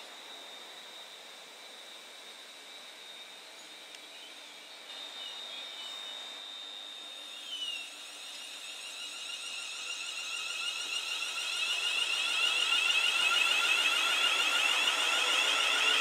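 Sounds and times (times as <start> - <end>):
electric train motor whining: 4.9 - 16.0.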